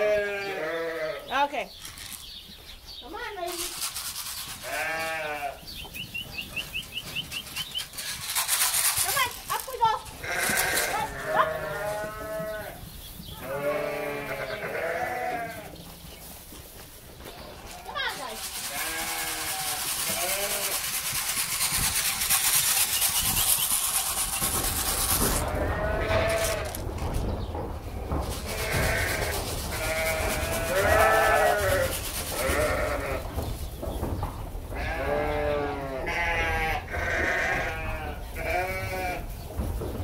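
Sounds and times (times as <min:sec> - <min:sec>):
sheep bleating: 0:00.0 - 0:01.4, 0:04.6 - 0:05.6, 0:09.1 - 0:12.8, 0:13.4 - 0:15.7, 0:17.8 - 0:20.8, 0:25.4 - 0:26.8, 0:28.5 - 0:33.3, 0:34.8 - 0:39.3.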